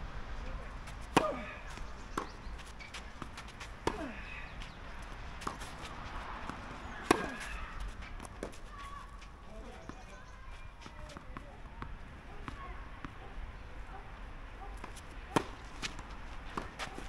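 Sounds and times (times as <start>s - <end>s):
racket striking tennis ball: 0.9s - 8.8s, 14.8s - 17.0s
tennis ball bouncing: 0.9s - 13.7s, 14.6s - 17.0s.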